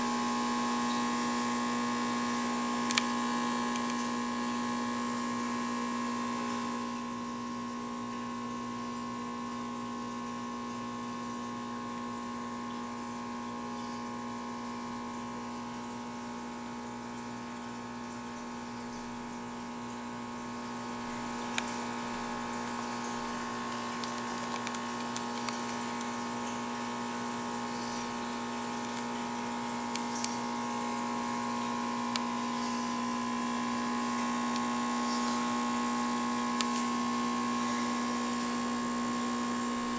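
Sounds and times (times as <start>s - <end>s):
aquarium pump humming: 0.0s - 39.9s
small clicks: 2.8s - 4.1s, 21.4s - 21.9s, 22.7s - 26.6s, 29.9s - 30.5s.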